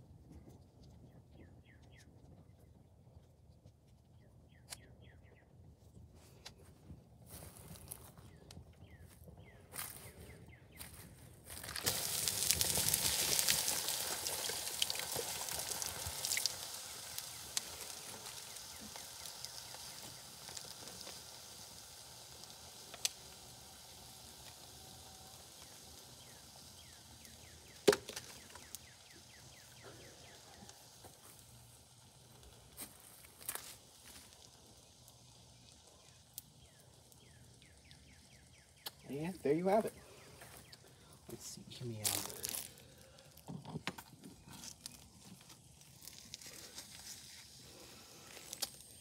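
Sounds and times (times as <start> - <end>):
plastic crackling and popping: 11.4 - 21.6, 22.3 - 39.1, 40.5 - 49.0
water hissing on fire: 11.4 - 49.0.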